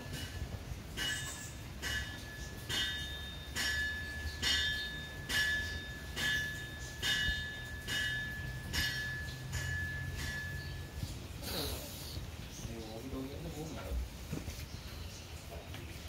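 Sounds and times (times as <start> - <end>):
bell-like ring struck: 0.1 - 11.0.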